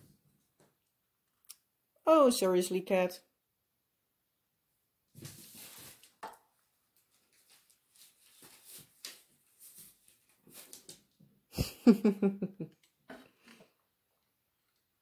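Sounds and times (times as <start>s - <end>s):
cat scuffing in cardboard box: 5.2s - 6.2s.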